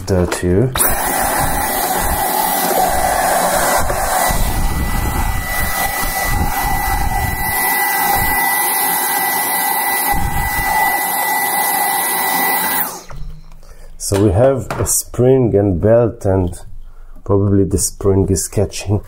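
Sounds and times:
cordless vacuum high whine: 0.8 - 13.6.

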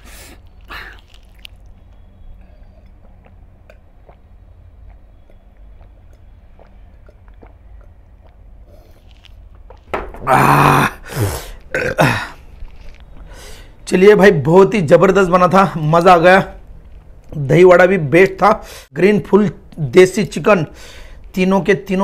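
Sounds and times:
man gulping a drink: 2.8 - 13.4
loud burp: 10.2 - 12.4.

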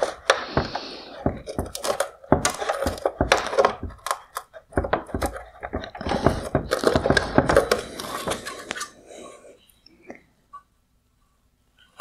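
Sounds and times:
hard plastic clicking and creaking: 0.0 - 8.9
plastic rubbing: 0.0 - 9.0.

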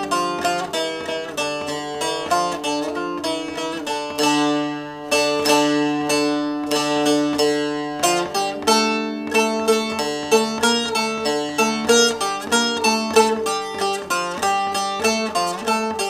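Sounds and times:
picked long-neck lute melody: 0.0 - 16.0.

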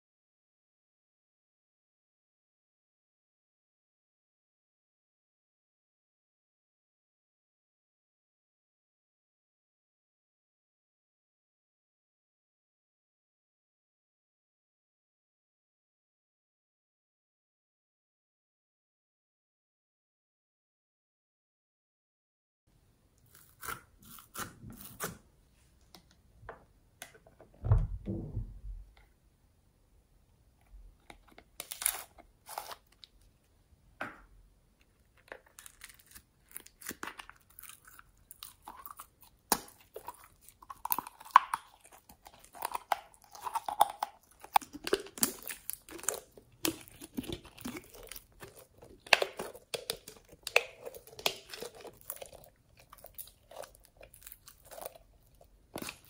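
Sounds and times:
low thump: 27.6 - 28.8
slime crackling and squelching: 35.2 - 56.0.

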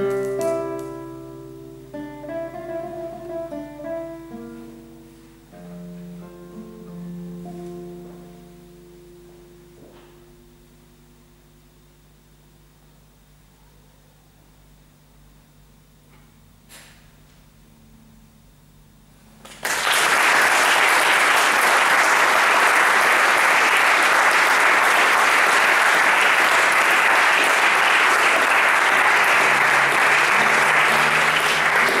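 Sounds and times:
audience applause: 19.4 - 32.0.

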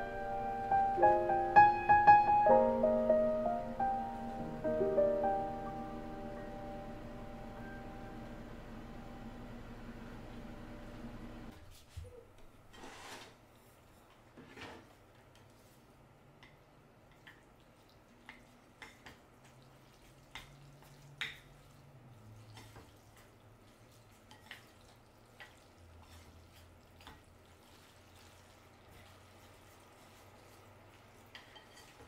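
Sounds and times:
low steady hum: 0.0 - 12.7.

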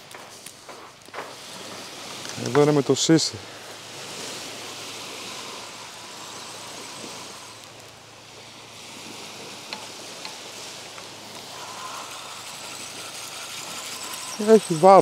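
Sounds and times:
small waves on sandy beach: 0.0 - 15.0.

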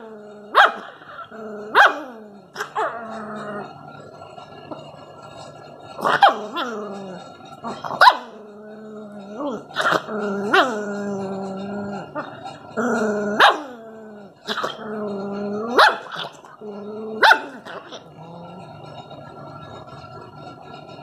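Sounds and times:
puppy growling: 0.0 - 21.0.

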